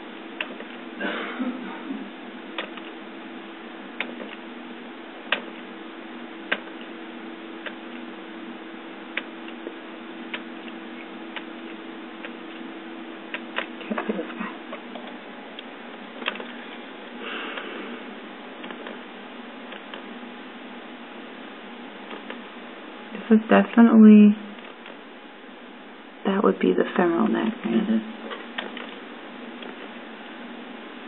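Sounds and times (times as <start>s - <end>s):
low electrical hum: 0.0s - 31.0s
computer mouse clicking: 5.3s - 5.5s, 6.5s - 6.9s, 14.8s - 16.5s.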